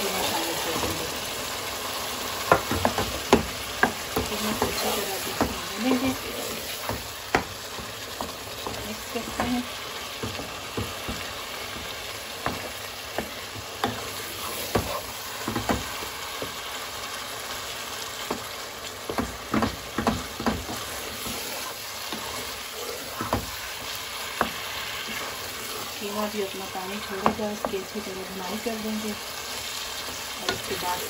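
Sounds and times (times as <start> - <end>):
meat sizzling in a pan: 0.0 - 31.0
spatula scraping a pan: 2.4 - 16.7, 19.1 - 31.0.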